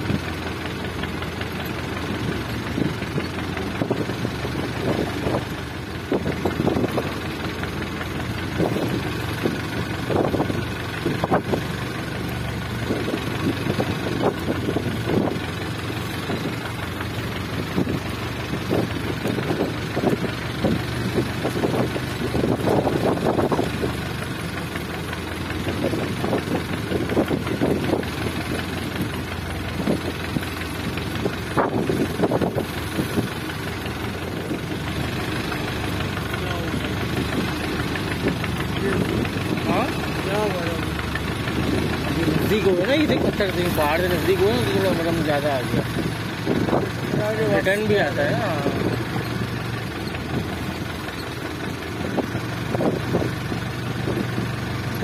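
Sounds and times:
boat engine humming: 0.0 - 55.0.

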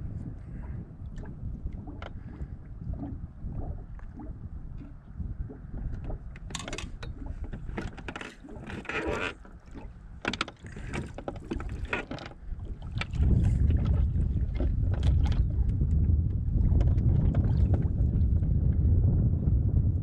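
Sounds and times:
wind rumble on microphone: 0.0 - 20.0
paddle splashes and drips: 0.6 - 15.9, 16.5 - 18.4
paddle clicks: 4.0 - 16.9.

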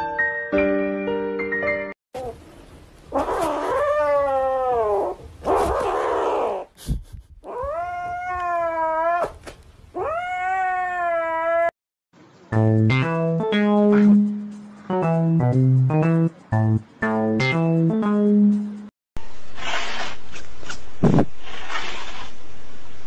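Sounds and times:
cat yowling: 3.1 - 6.7, 7.5 - 9.4, 10.0 - 11.7.

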